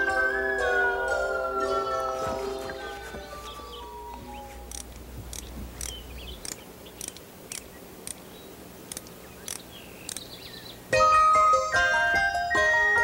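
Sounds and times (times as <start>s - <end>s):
high-pitched chirps and clicks: 4.1s - 8.2s, 8.9s - 10.4s.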